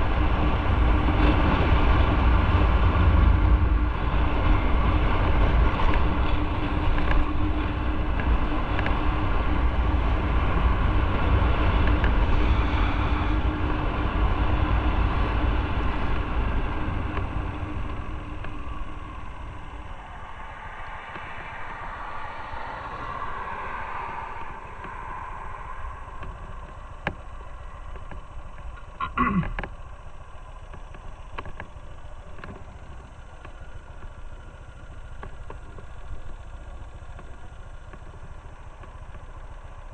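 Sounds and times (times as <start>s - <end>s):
wind rush on microphone: 0.0s - 28.3s
motorcycle engine running: 0.0s - 39.9s
short falling whine with clicks: 3.4s - 39.7s.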